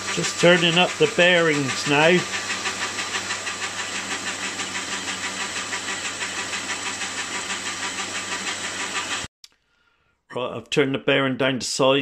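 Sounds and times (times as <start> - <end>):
lathe motor hum: 0.0 - 9.3
pulsing cutting hiss: 0.0 - 9.3.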